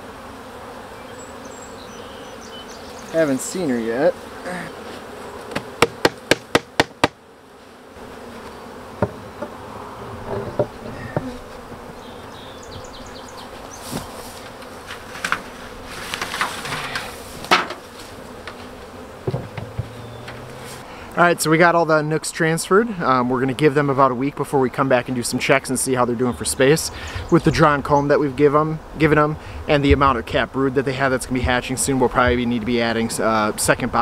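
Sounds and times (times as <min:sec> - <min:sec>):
honey bees buzzing: 0:00.0 - 0:34.0
wooden knocks: 0:05.5 - 0:07.2, 0:09.0 - 0:09.6, 0:10.2 - 0:12.0, 0:19.2 - 0:20.5.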